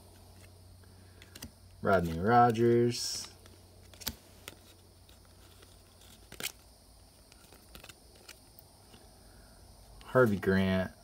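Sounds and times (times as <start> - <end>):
trading cards rustling and clicking: 0.0 - 9.1
card snap: 3.2 - 4.6.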